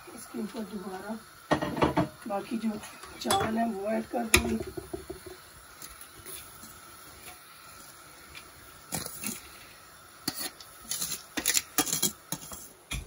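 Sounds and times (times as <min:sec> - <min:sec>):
spoon scraping a cooking pot: 0:10.2 - 0:12.8.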